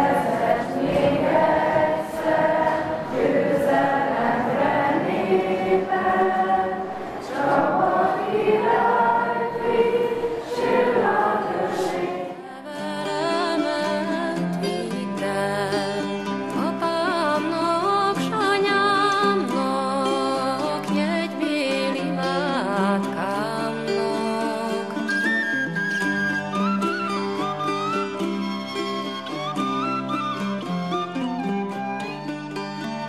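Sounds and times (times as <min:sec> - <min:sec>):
choir singing held phrases: 0:00.0 - 0:12.8.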